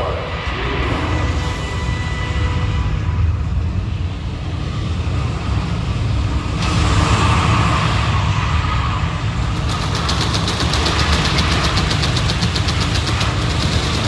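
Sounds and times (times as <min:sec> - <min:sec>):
fast rattle: 0:09.4 - 0:14.0.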